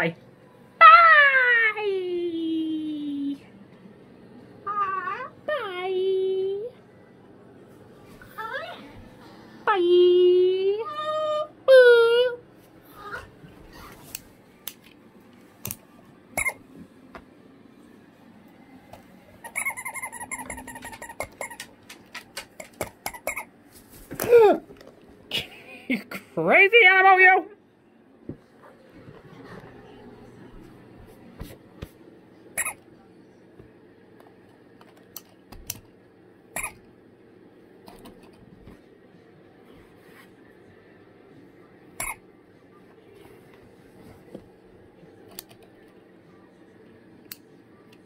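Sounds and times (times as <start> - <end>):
cockatoo wavering squeak: 19.4 - 21.6
cockatoo tapping: 19.8 - 23.4
rapid clicks and taps: 20.7 - 23.2.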